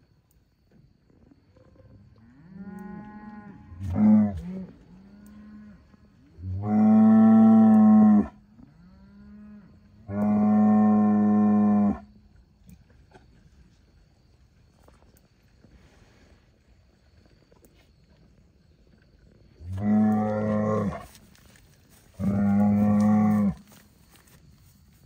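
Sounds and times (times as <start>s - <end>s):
bull bellowing: 19.6s - 21.2s, 22.1s - 23.6s.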